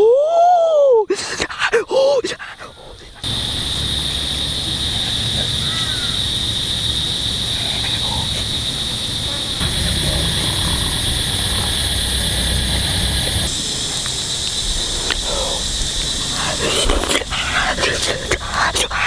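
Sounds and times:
high insect buzz: 3.1 - 19.0
wind rumble on microphone: 6.2 - 18.4
higher-pitched buzz: 9.4 - 14.5.

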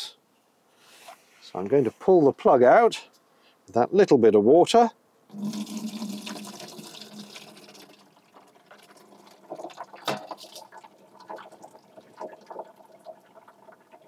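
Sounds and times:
drain gurgling: 5.3 - 14.0
water rushing down sink drain: 5.3 - 14.0.

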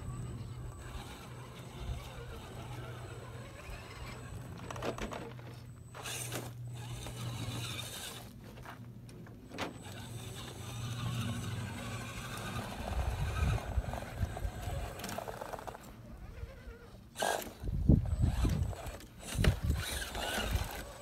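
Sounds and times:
electric motor whining: 0.0 - 8.3, 9.6 - 21.0
tyres scrabbling on gravel: 0.4 - 15.9.

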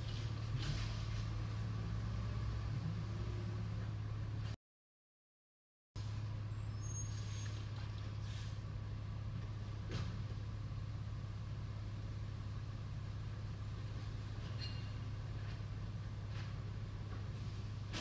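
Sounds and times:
truck engine droning: 0.0 - 4.6.

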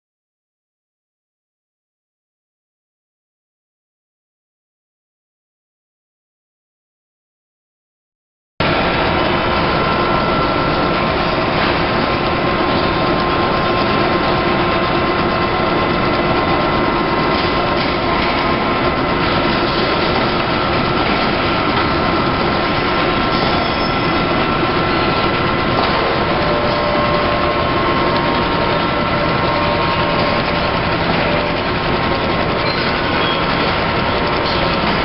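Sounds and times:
stitching machine running: 8.6 - 35.0.

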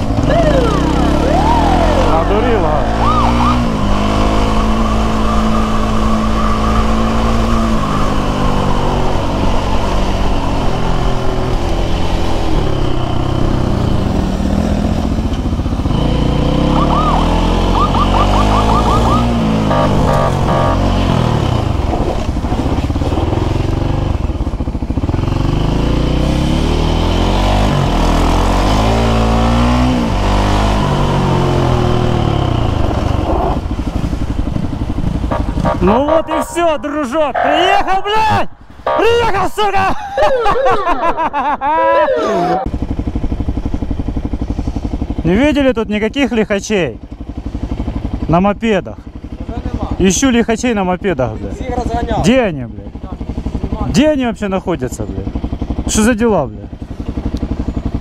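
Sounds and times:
motorcycle engine revving: 0.0 - 39.9, 42.2 - 58.0
warbling siren: 0.2 - 9.4, 16.0 - 21.4, 35.3 - 38.0, 38.8 - 39.4, 41.8 - 42.7.

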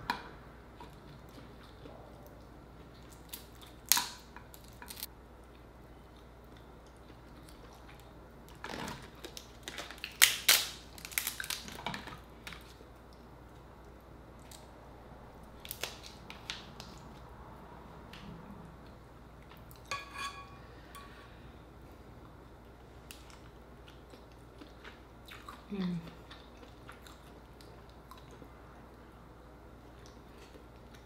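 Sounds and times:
crab shell cracking and crunching: 3.1 - 5.1, 8.5 - 12.7, 15.6 - 17.0.

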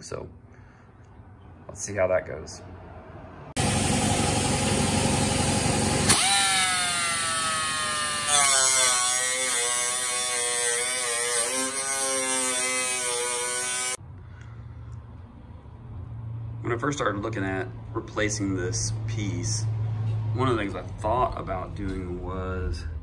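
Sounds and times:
rotary tool cutting metal: 6.0 - 14.0.

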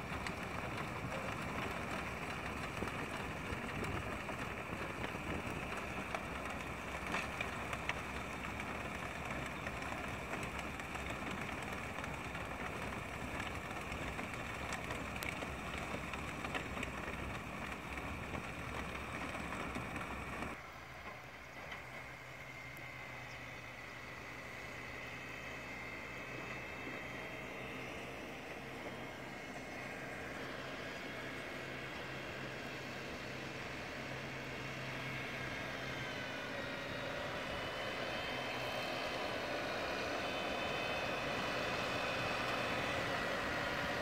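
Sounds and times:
faint clicks: 0.0 - 22.0
tractor engine running: 0.0 - 44.0.

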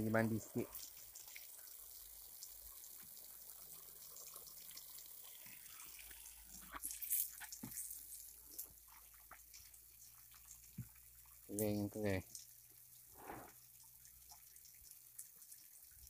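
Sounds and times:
hose spraying onto wooden planks: 5.3 - 8.8.

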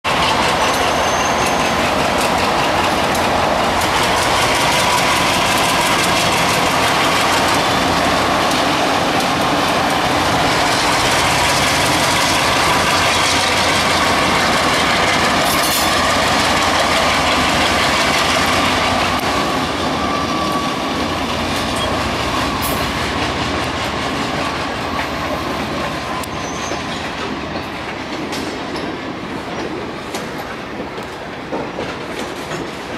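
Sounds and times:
diesel locomotives working: 0.0 - 32.9
wheels clattering over rails: 0.1 - 20.0.

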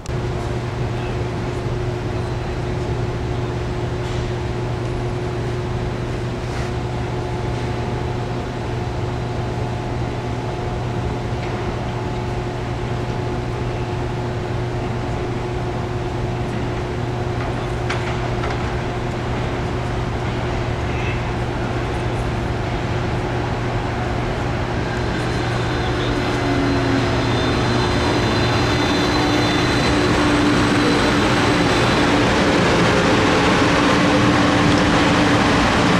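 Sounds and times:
low mechanical hum: 0.0 - 35.9.

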